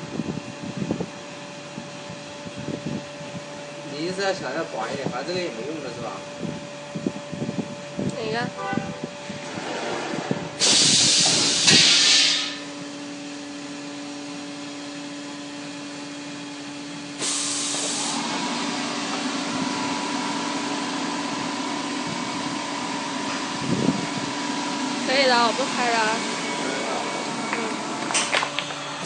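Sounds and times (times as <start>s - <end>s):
machine humming: 5.2s - 29.0s
air hiss: 10.6s - 12.7s, 17.2s - 18.2s.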